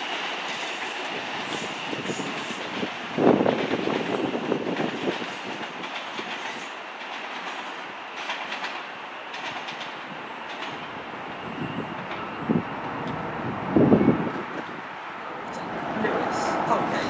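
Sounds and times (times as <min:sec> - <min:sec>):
electric train running: 0:00.0 - 0:17.0
wheels clicking over rail joints: 0:00.5 - 0:10.9.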